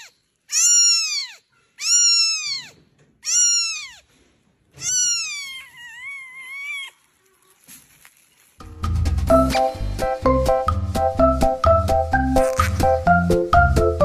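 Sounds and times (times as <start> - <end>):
kitten mewing: 0.0 - 4.1, 4.8 - 7.1.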